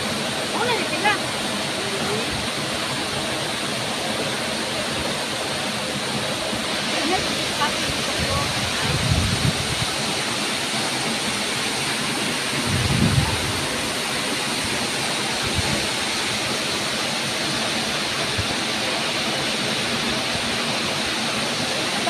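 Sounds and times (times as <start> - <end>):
waterfall rushing: 0.0 - 22.0
low rumble: 12.6 - 13.9.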